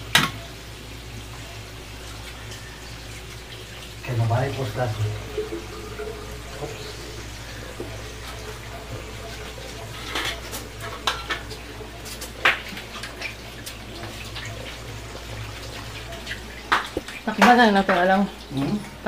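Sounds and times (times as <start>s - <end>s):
faint running water: 0.0s - 19.0s
low hum: 2.4s - 16.8s
dishes clinking: 5.3s - 13.3s.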